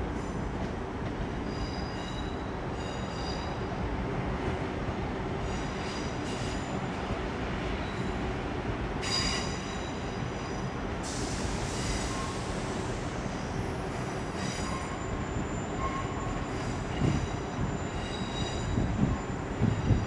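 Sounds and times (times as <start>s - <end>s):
train rumble: 0.0s - 20.0s
wheel squeal: 14.4s - 20.0s.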